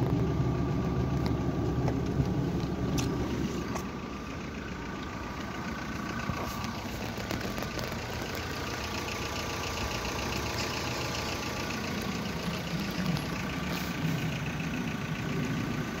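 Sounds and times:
car engine idling: 0.0 - 16.0
faint rapid ticking: 3.9 - 16.0.

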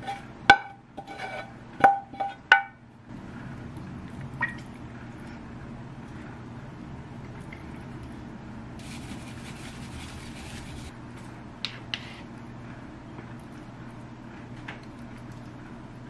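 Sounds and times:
low steady hum: 0.0 - 16.0
seeds shaken from a glass shaker: 8.8 - 10.9.

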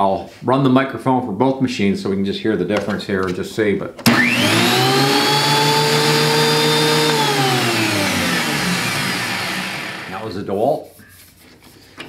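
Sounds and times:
planer motor whining: 4.0 - 10.2.

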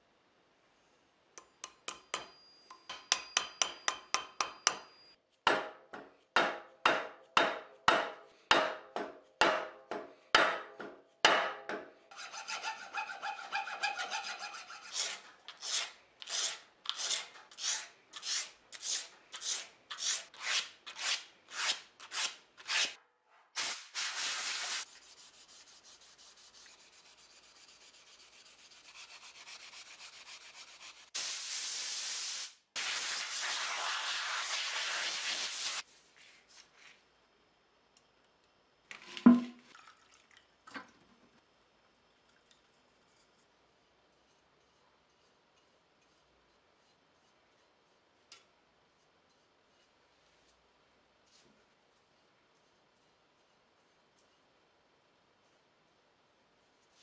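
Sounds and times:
sandpaper strokes: 12.1 - 23.0, 23.6 - 31.2, 32.8 - 36.6.

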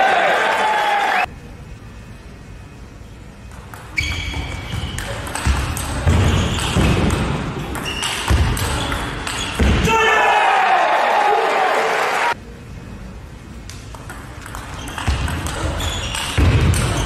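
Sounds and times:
shoes squeaking on floor: 4.0 - 5.1, 6.1 - 6.9, 7.8 - 9.6, 14.7 - 17.0.

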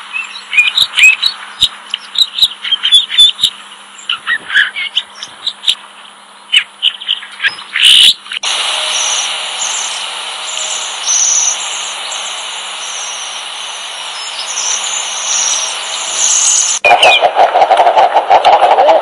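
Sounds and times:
bird chirps: 0.1 - 17.4
high-pitched bird calls: 0.1 - 19.0
background hiss: 8.3 - 16.9.

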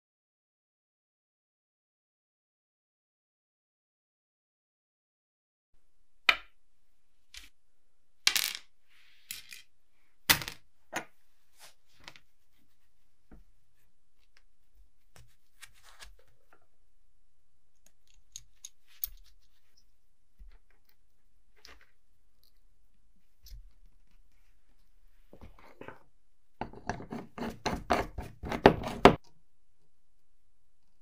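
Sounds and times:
faint clicks of handling metal: 17.7 - 22.7.

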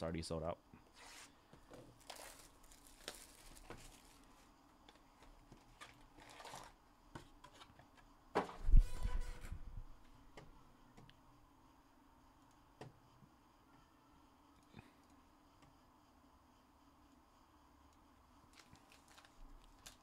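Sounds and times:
cardboard rustling and tearing: 2.0 - 4.3, 5.2 - 6.8, 18.6 - 20.0.

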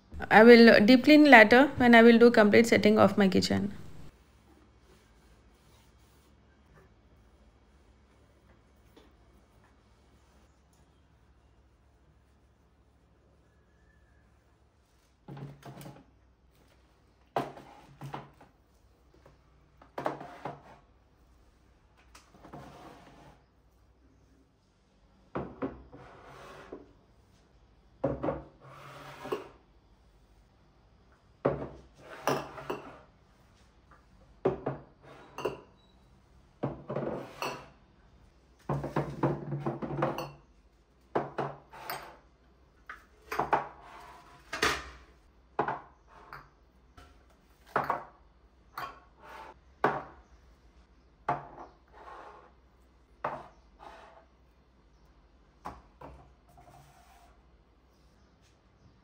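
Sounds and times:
kitchenware clattering and knocking: 34.4 - 35.8, 36.6 - 37.7, 38.7 - 40.5, 43.2 - 46.6, 47.6 - 49.2.

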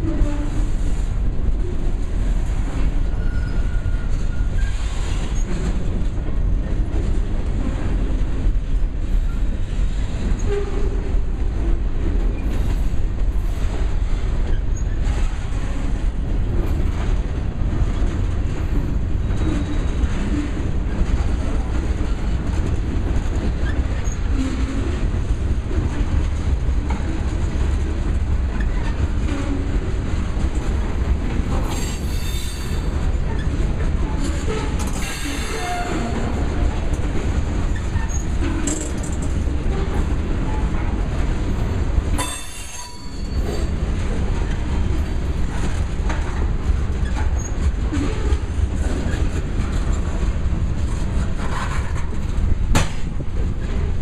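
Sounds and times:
steel wheels rumbling on rails: 0.0 - 54.0
wheel squeals: 19.2 - 20.2.

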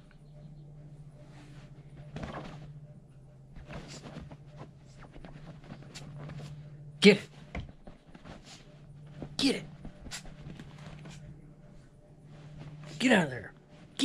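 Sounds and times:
low hum: 0.0 - 14.0
fabric rustling: 1.2 - 14.0
puppy scratching on pillow: 3.5 - 13.0.

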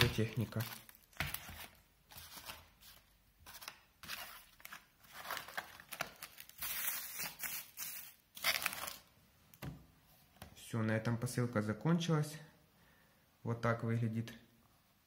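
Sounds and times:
plastic wrap crinkling: 0.0 - 9.1.

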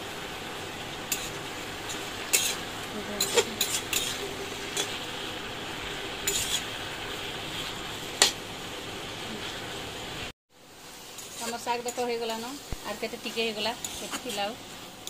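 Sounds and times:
greens sizzling: 0.0 - 15.0
metal spatula scraping a wok: 1.1 - 5.0, 6.2 - 6.8, 11.1 - 15.0.

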